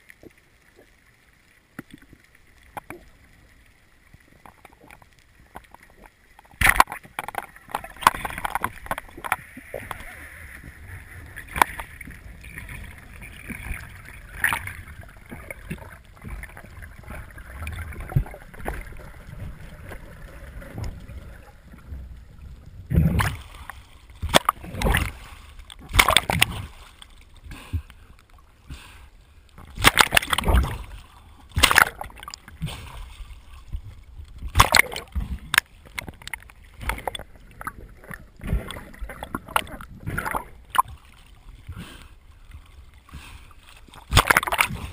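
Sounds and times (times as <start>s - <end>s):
water splashing and bubbling: 0.0s - 44.9s
muffled underwater hiss: 26.5s - 29.8s, 41.4s - 44.0s.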